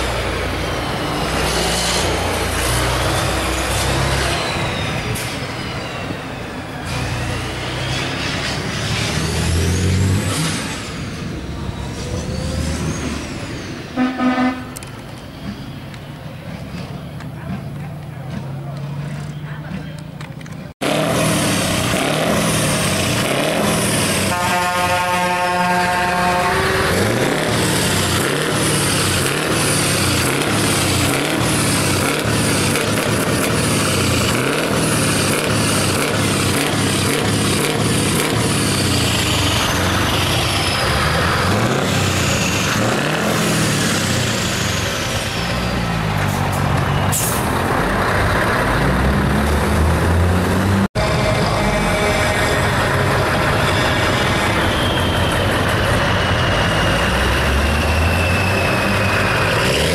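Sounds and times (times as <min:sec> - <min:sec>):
truck diesel engines revving: 0:00.0 - 0:59.9
air horn blast: 0:14.0 - 0:14.8, 0:24.2 - 0:27.1, 0:51.0 - 0:55.0.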